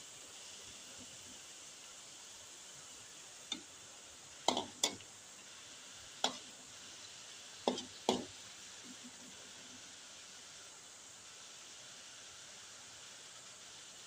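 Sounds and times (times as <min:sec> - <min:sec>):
faint hiss: 0:00.0 - 0:14.0
utensil knocking against pan: 0:07.7 - 0:08.3.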